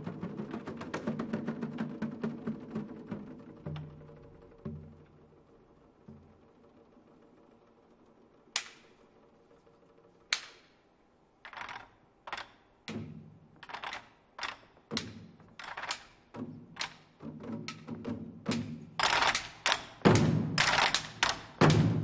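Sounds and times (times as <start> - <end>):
wooden drumsticks clacking: 8.5 - 9.1, 10.2 - 22.0.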